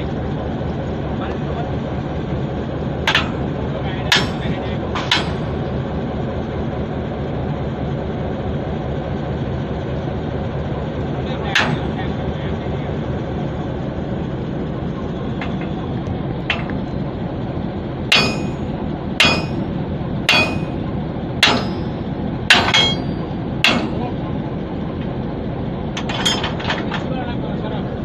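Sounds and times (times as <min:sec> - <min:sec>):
hammer striking steel coupler: 0:03.0 - 0:05.7, 0:11.5 - 0:12.2, 0:15.4 - 0:15.8, 0:16.5 - 0:16.9, 0:18.1 - 0:24.2, 0:26.0 - 0:27.1.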